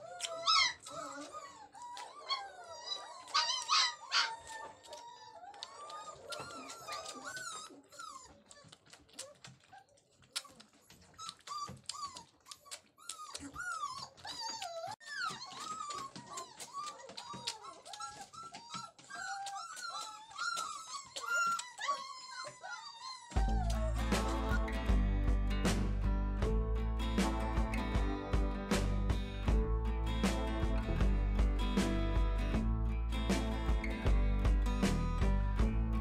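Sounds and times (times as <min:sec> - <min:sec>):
puppies whining: 0:00.0 - 0:25.0.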